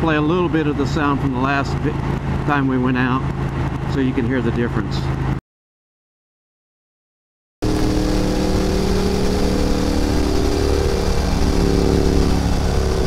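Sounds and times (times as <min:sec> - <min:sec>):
motorcycle exhaust cruising: 0:07.6 - 0:13.0
wind noise: 0:07.6 - 0:13.0.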